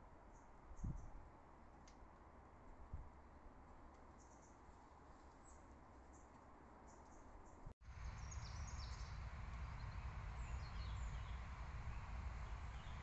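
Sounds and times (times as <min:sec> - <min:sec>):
wind rumble on microphone: 0:00.8 - 0:01.3, 0:07.9 - 0:13.0.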